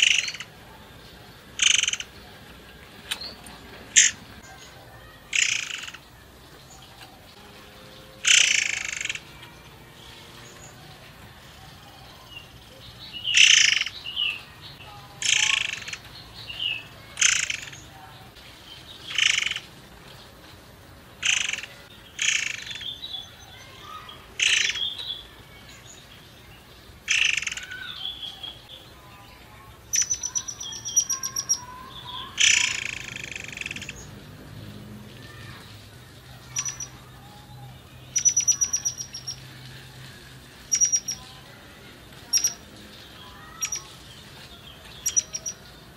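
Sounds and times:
songbird harsh rasping calls: 0.0s - 0.6s, 1.5s - 2.3s, 3.9s - 4.4s, 5.0s - 6.1s, 8.1s - 9.4s, 13.1s - 17.9s, 19.0s - 19.7s, 21.2s - 25.3s, 27.0s - 28.6s, 29.9s - 34.1s, 36.4s - 39.5s, 40.5s - 41.3s, 42.2s - 42.6s, 43.2s - 44.0s, 45.0s - 45.6s
bird rattling trill: 1.6s - 2.1s, 8.2s - 9.2s.

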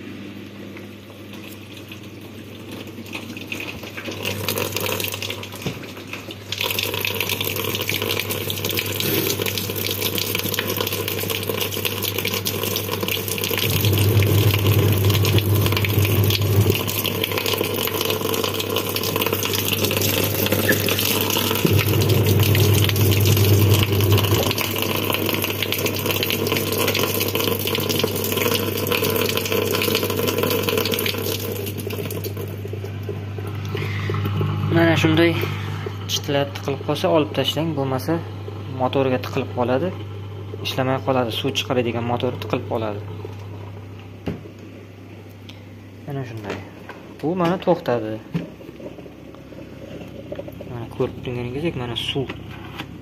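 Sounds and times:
low steady hum: 0.0s - 53.0s
water pouring into plastic tub: 1.3s - 34.4s.

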